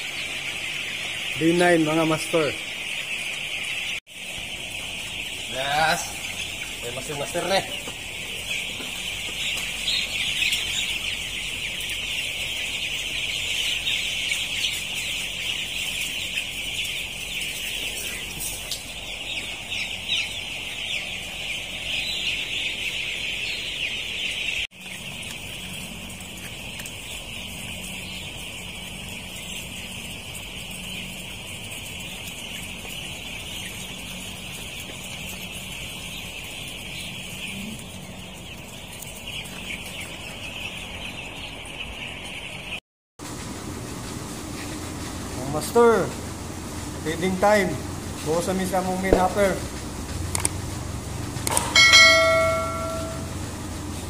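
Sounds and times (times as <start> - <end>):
chicks peeping: 0.0 - 54.0
low steady hum: 49.2 - 54.0.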